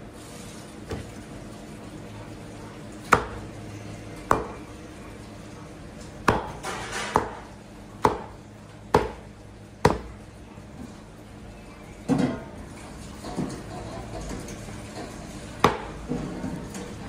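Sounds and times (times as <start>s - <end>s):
cleaver chopping meat on wood: 3.1s - 3.5s, 4.3s - 4.6s, 6.2s - 10.2s, 15.6s - 15.9s.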